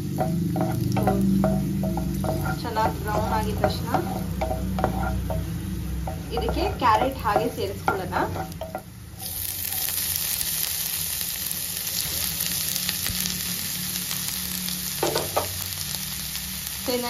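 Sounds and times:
frying hiss: 0.0s - 17.0s
spatula scraping: 0.2s - 8.9s.

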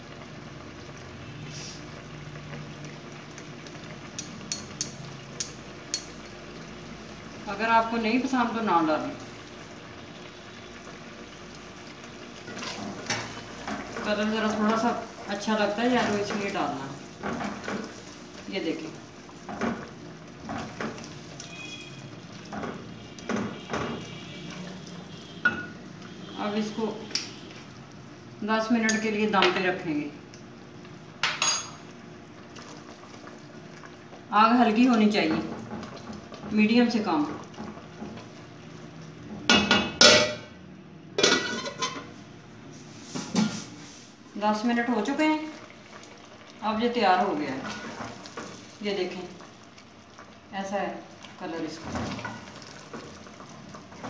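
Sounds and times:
syrup sizzling: 0.0s - 29.0s, 44.9s - 54.0s
syrup bubbling in a pot: 31.9s - 39.3s, 45.2s - 54.0s.

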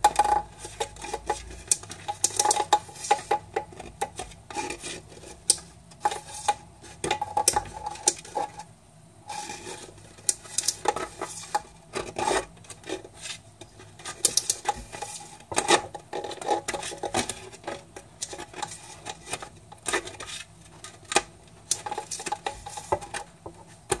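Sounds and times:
tortoise claws scraping plastic: 9.3s - 24.0s.

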